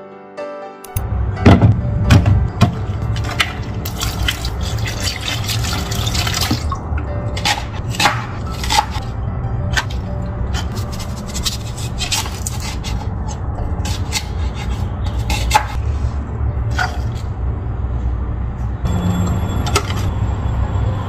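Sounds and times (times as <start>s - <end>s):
knife scraping onion: 7.4s - 9.1s, 9.7s - 15.8s.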